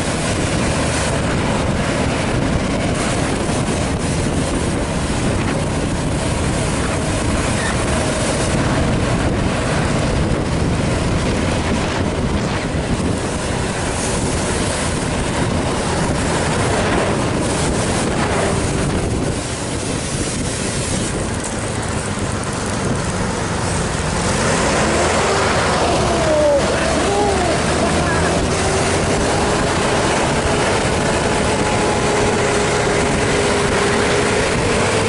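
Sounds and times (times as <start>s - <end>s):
engine and tyre rumble: 0.0s - 35.0s
wind buffeting microphone: 0.0s - 35.0s.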